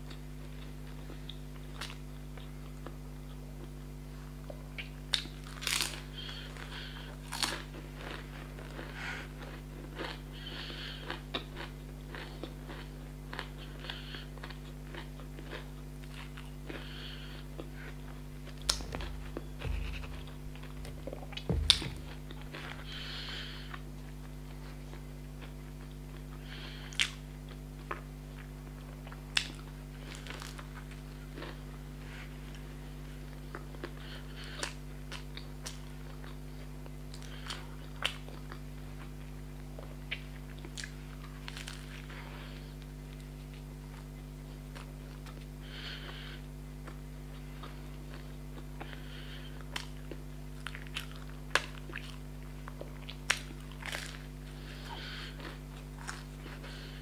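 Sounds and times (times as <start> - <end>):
crunchy pastry chewing: 0.0 - 57.0
low hum: 16.1 - 26.8
wet mouth sounds: 18.5 - 23.2.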